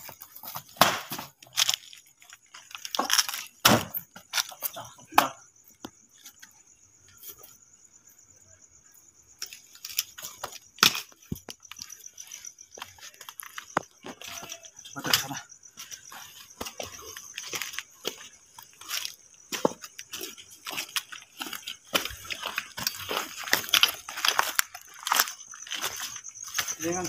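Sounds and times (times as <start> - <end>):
footsteps on rubble and plants: 0.0 - 3.6, 9.4 - 27.0
cricket trilling: 0.0 - 27.0.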